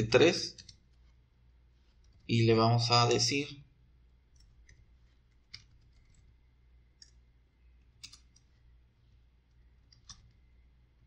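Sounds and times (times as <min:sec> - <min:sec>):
low steady hum: 0:00.0 - 0:11.0
keyboard keystrokes: 0:04.4 - 0:06.3, 0:08.0 - 0:08.5, 0:09.8 - 0:10.4.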